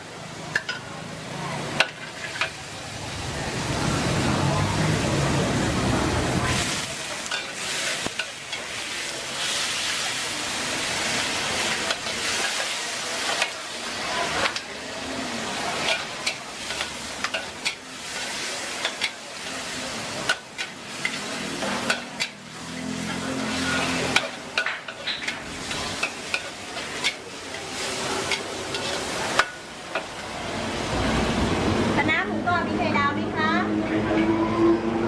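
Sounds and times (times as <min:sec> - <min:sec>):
food sizzling in a wok: 0:00.0 - 0:32.6
metal spatula scraping a wok: 0:15.8 - 0:29.6.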